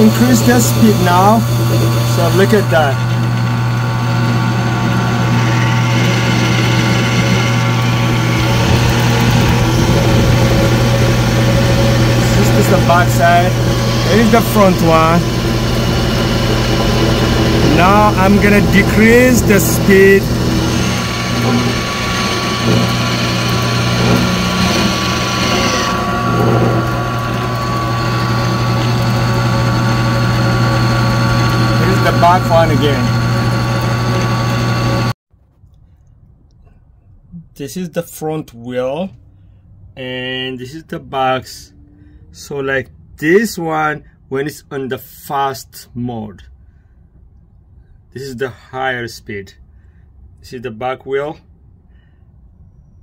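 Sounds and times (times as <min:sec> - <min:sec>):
belt turning on pulleys: 0:00.0 - 0:35.2
drill press motor humming: 0:00.0 - 0:35.2.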